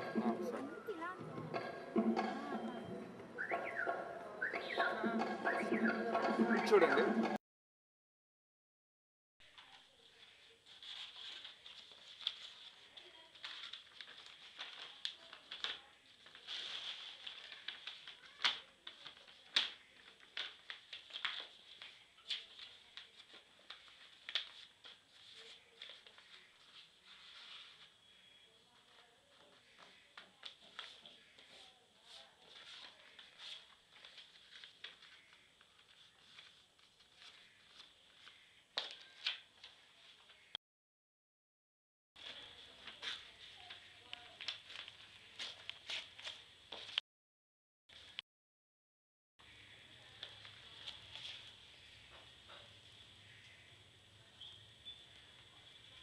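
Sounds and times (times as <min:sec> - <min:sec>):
paper rustling and crackling: 0:09.5 - 0:28.0, 0:28.6 - 0:40.5, 0:42.2 - 0:47.0, 0:50.2 - 0:52.8.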